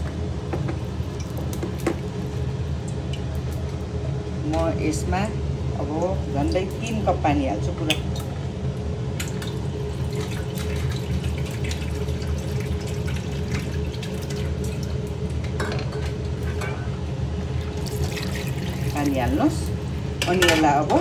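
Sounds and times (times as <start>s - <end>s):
low steady hum: 0.0s - 21.0s
water pouring into steel pot: 17.6s - 19.3s.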